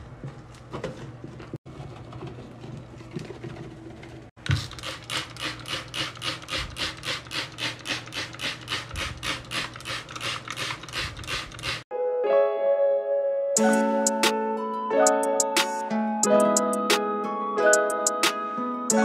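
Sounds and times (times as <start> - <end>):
scrubber scrubbing a sink: 4.4 - 11.8.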